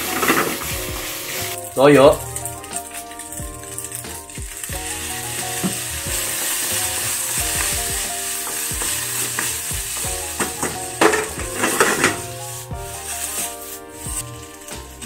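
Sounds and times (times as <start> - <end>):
rice sizzling in a wok: 0.0 - 15.0
wooden spatula scraping wok: 0.0 - 15.0
scrapes and knocks: 7.4 - 15.0.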